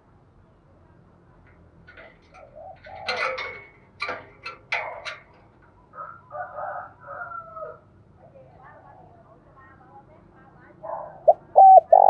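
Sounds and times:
dove cooing: 2.3s - 3.5s, 10.9s - 12.0s.

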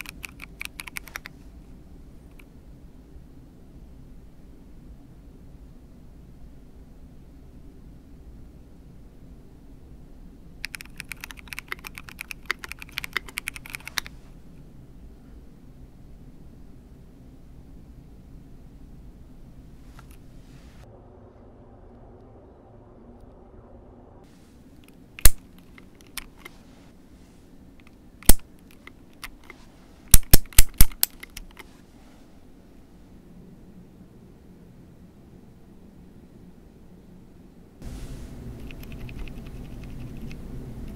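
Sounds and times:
mechanical keyboard key clacks: 0.0s - 1.3s, 10.6s - 14.1s, 25.2s - 26.5s, 30.1s - 31.7s, 38.6s - 40.4s
plastic keycaps clicking: 0.0s - 1.3s, 10.6s - 14.1s, 25.2s - 26.5s, 27.8s - 31.7s, 38.6s - 40.4s.

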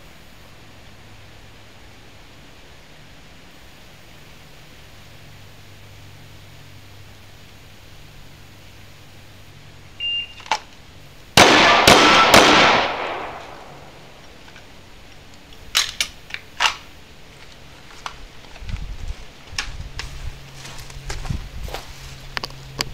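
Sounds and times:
shot timer beep: 10.0s - 10.4s
pistol shots: 11.4s - 14.1s.

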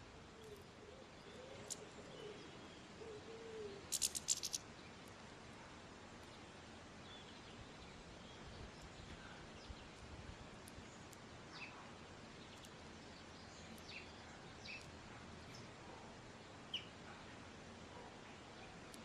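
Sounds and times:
background hiss: 0.0s - 19.0s
bird chirps: 0.4s - 4.6s.

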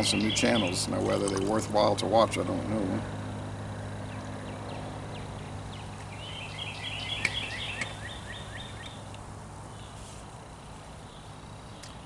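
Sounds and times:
songbird chirping: 0.0s - 2.9s, 4.0s - 12.0s
steady low hum: 0.0s - 12.0s.

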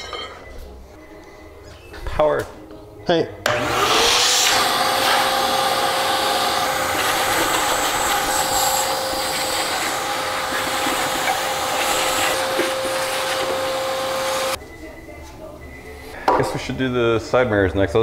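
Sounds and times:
shop vacuum whining: 3.4s - 14.6s.

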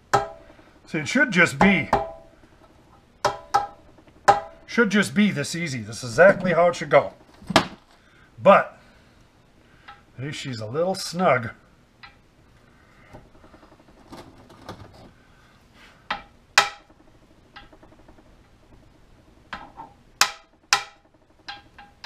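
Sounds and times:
hammer tapping on steel: 0.1s - 0.4s, 3.2s - 4.6s, 16.1s - 16.9s, 20.2s - 22.0s.

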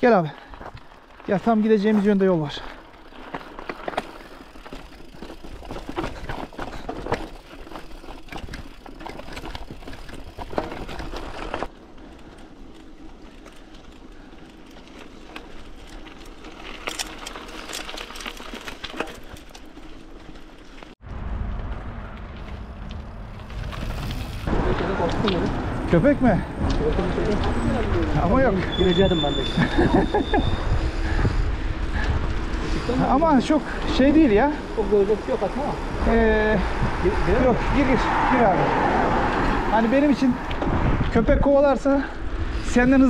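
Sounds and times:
footsteps on stony ground: 0.2s - 28.8s
wind buffeting microphone: 29.5s - 34.0s, 35.8s - 43.0s.

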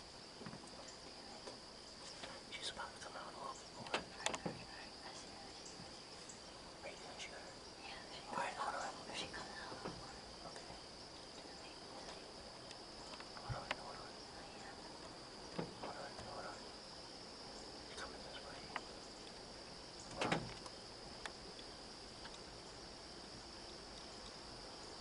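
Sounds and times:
insects chirping: 0.0s - 25.0s
soft knocks and rustles: 0.4s - 2.5s, 3.8s - 4.8s, 9.2s - 10.2s, 15.0s - 16.4s.

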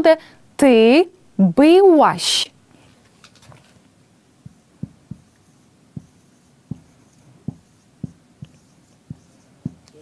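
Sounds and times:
marker tapping on whiteboard: 4.4s - 10.0s.

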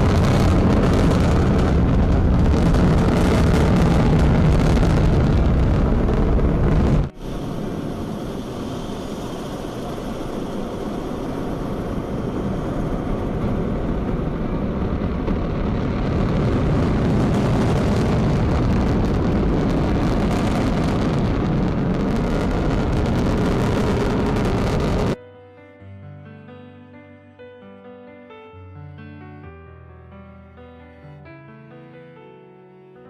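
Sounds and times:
rocket engines roaring: 0.0s - 25.2s.

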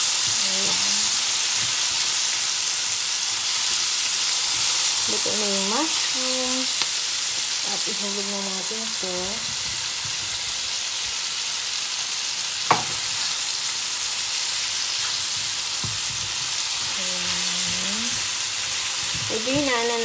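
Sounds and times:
food sizzling in frying pan: 0.0s - 20.0s
sharp knock: 12.7s - 13.0s
spatula stirring: 14.5s - 20.0s.

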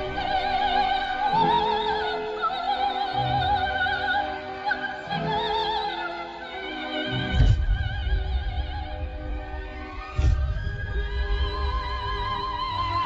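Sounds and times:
operatic high voice singing: 0.0s - 13.0s
low held accompaniment: 5.0s - 13.0s.

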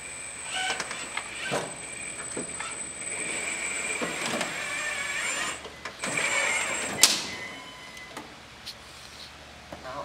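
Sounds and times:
electric motor whining: 0.4s - 7.7s.

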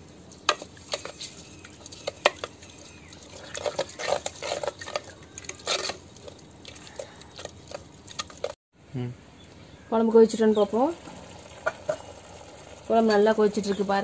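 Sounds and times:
liquid sloshing in a pot: 0.5s - 8.6s
wooden ladle scraping a clay pot: 0.5s - 8.6s.

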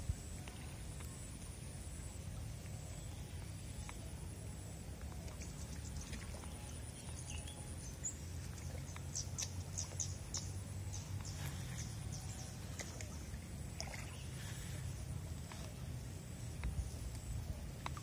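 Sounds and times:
steady low rumble: 0.0s - 18.0s
bird chirping: 5.4s - 13.1s.

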